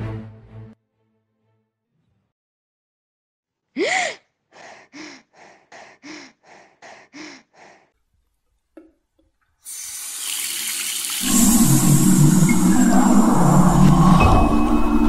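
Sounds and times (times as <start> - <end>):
woman panting: 3.8 - 8.0
water running from tap: 9.6 - 12.3.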